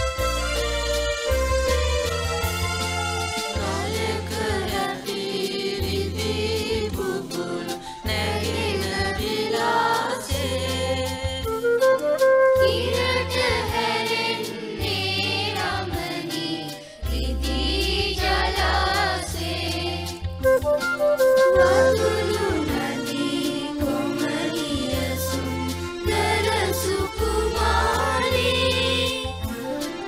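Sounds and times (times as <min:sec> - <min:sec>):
instrumental backing with bass: 0:00.0 - 0:30.0
children's choir singing: 0:03.6 - 0:11.2, 0:12.6 - 0:20.2, 0:21.5 - 0:29.5.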